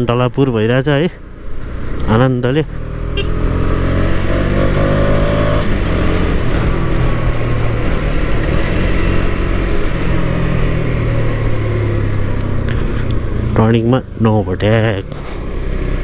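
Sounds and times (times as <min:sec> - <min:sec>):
motorcycle engine running: 0:02.8 - 0:14.2.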